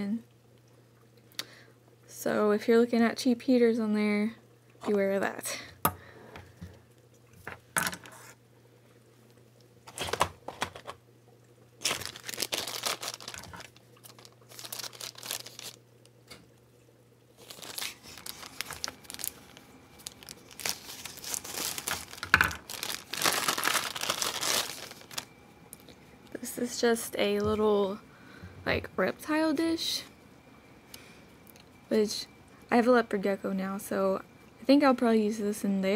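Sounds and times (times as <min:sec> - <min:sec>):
plastic crinkling and tearing: 0:09.9 - 0:11.0, 0:11.8 - 0:15.8, 0:17.4 - 0:25.3
scissors cutting plastic: 0:09.9 - 0:11.0.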